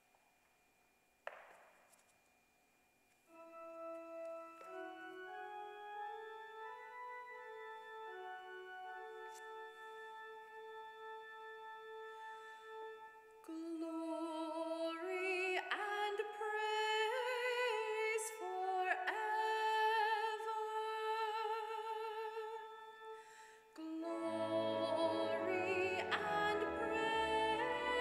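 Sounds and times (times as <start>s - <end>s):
solo voice singing with vibrato: 23.8s - 28.0s
sustained accompanying chords: 24.0s - 28.0s.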